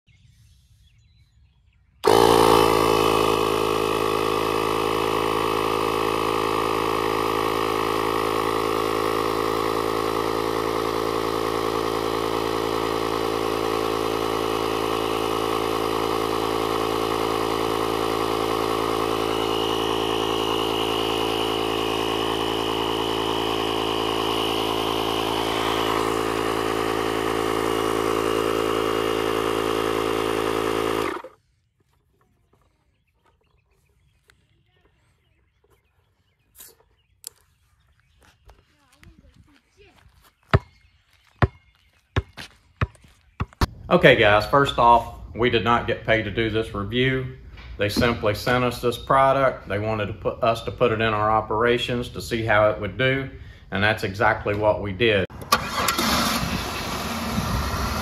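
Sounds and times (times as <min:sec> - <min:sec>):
air compressor running: 0:02.0 - 0:31.6, 0:55.3 - 0:58.0.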